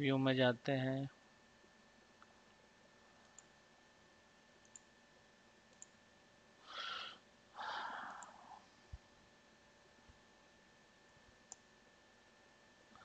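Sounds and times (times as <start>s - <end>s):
faint computer mouse clicks: 3.2s - 3.5s, 4.6s - 4.9s, 5.7s - 6.0s.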